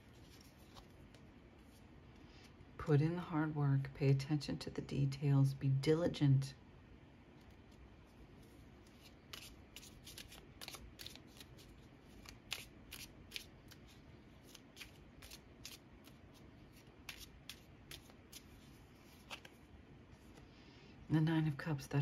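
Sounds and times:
cards being shuffled: 0.1 - 1.8, 8.4 - 20.4.

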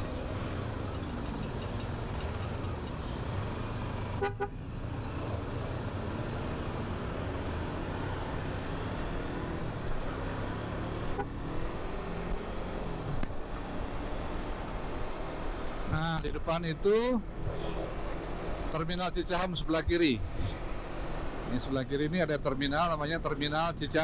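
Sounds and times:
road and wind noise: 0.0 - 24.0
vehicle horn toot: 4.2 - 4.5.

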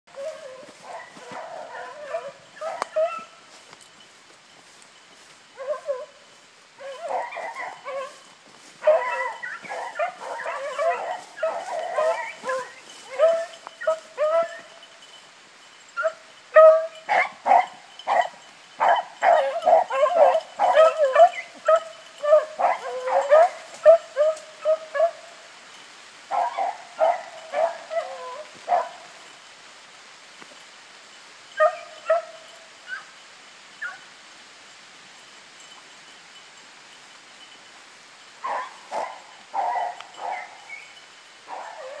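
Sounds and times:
beagles baying in a pack: 0.1 - 29.6, 30.3 - 34.4, 35.2 - 42.0.

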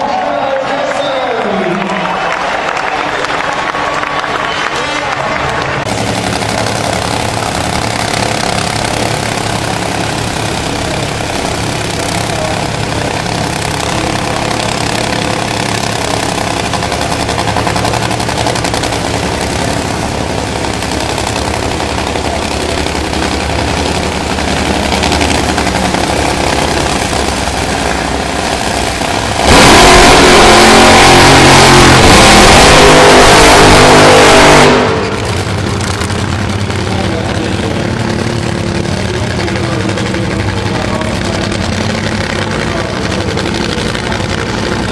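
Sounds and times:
dragster engine full throttle: 4.7 - 44.9
dragster engines idling: 5.2 - 44.9.

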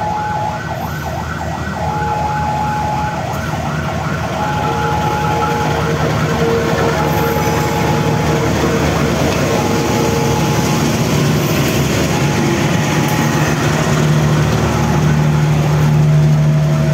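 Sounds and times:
diesel locomotive engine rumbling: 0.0 - 16.9
electronic warning siren yelping: 0.0 - 16.9.

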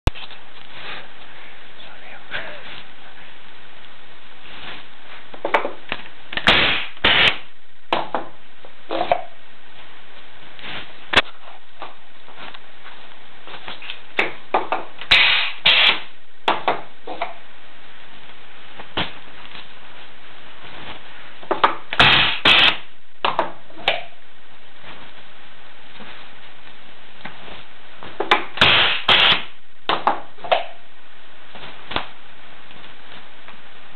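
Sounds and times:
pneumatic press air bursts: 6.4 - 7.4, 15.1 - 16.1, 22.0 - 22.8, 28.6 - 29.5.

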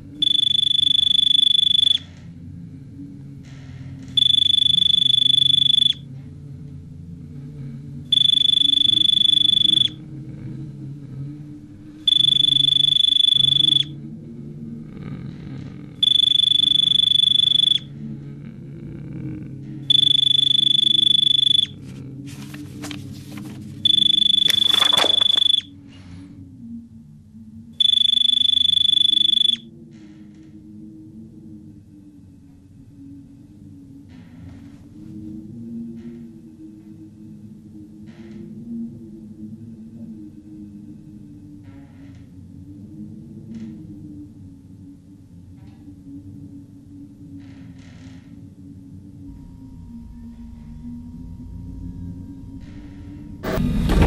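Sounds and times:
low steady hum: 0.0 - 41.6, 48.1 - 54.0
loud high electronic beep: 0.2 - 2.0, 4.2 - 6.0, 8.1 - 10.0, 12.1 - 13.9, 16.0 - 17.9, 19.9 - 21.8, 23.8 - 25.7, 27.8 - 29.6, 53.4 - 54.0.

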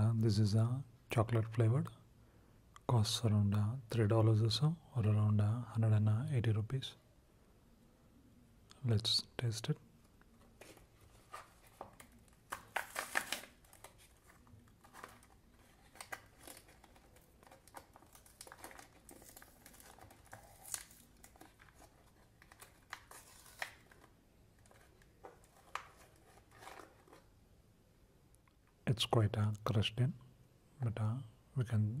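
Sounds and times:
snack wrapper crinkling: 11.3 - 27.3.

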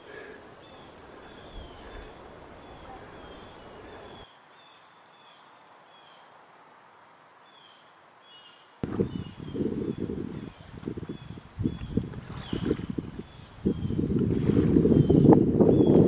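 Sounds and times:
bird chirping: 0.6 - 6.3
wind on microphone: 8.8 - 16.0.

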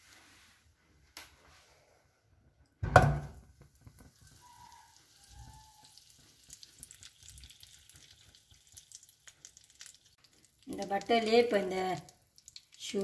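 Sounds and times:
butter thud in pan: 2.8 - 4.1
butter sizzling and crackling: 3.4 - 13.0.

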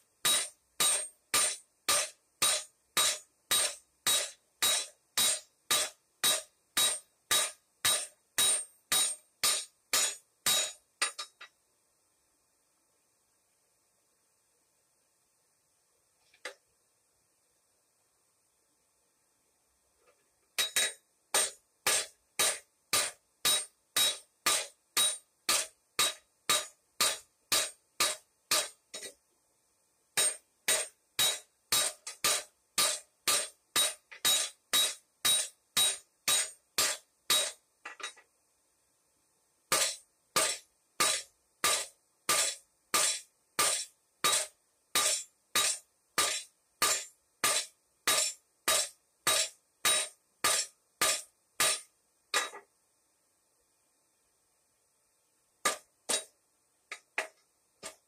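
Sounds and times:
hammer striking steel on anvil: 0.2 - 11.5, 20.6 - 29.2, 30.2 - 38.2, 39.7 - 52.6, 55.6 - 56.3.

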